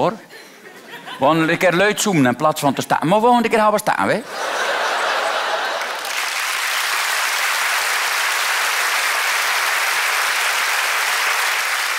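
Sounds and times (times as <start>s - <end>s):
audience applauding: 4.5s - 11.9s.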